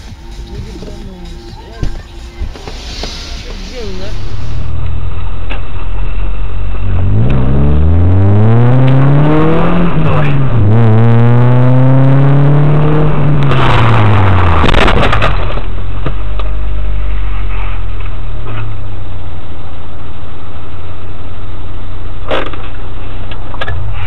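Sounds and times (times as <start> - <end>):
car engine winding down: 0.0 - 19.0.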